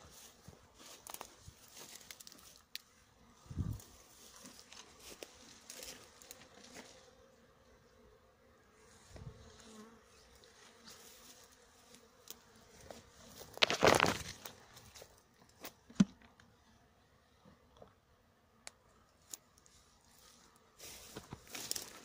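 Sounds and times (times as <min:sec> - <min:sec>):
leaves rustling against phone: 0:00.1 - 0:02.9, 0:03.6 - 0:07.1, 0:08.9 - 0:15.6, 0:19.2 - 0:22.0
bees buzzing: 0:03.1 - 0:14.2.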